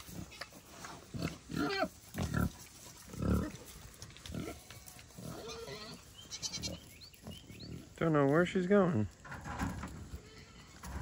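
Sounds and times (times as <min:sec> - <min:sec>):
pig grunting: 0:00.0 - 0:04.6.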